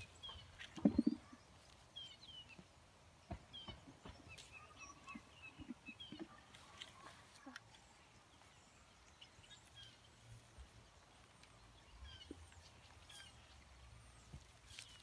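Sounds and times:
faint bird chirps: 0:00.0 - 0:02.6
rustling vines: 0:09.5 - 0:15.0.

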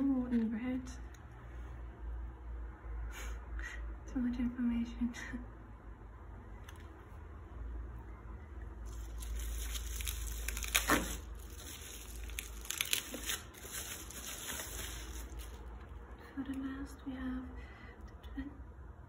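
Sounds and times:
bubble wrap crinkling: 0:08.8 - 0:16.0.

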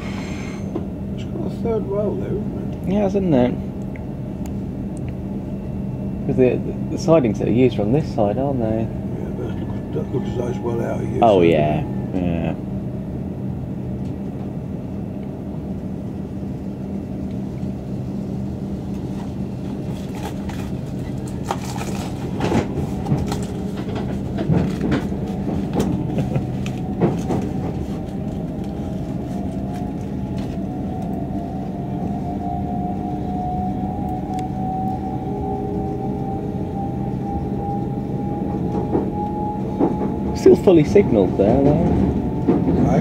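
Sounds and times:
electric train humming: 0:00.0 - 0:43.0
faint rising whine: 0:05.4 - 0:21.2, 0:25.3 - 0:41.5.

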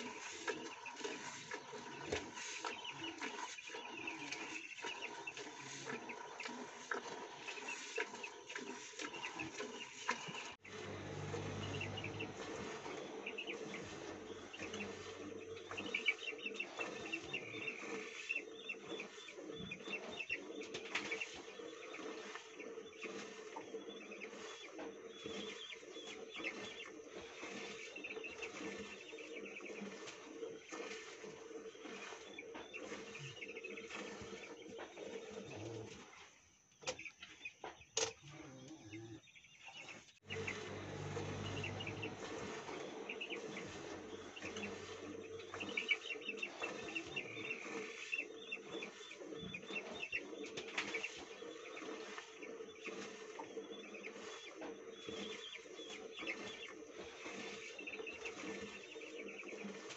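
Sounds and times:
chickens calling: 0:00.0 - 0:30.2, 0:39.4 - 0:59.9
birds chirping: 0:00.0 - 0:35.8, 0:36.8 - 0:59.9.

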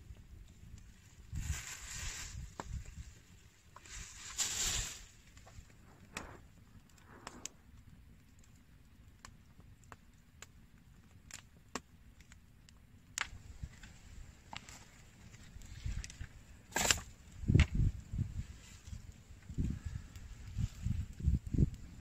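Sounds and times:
sharp clicks and light snaps: 0:08.2 - 0:13.9.

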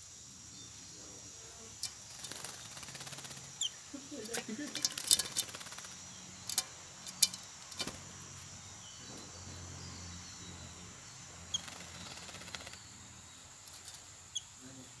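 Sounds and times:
high bird chirp: 0:08.6 - 0:14.8.

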